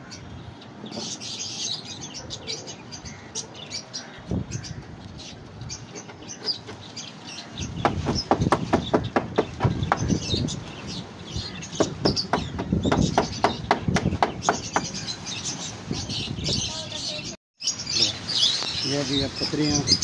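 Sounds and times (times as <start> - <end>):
hammer striking wooden frame: 7.8 - 10.0, 11.8 - 14.9.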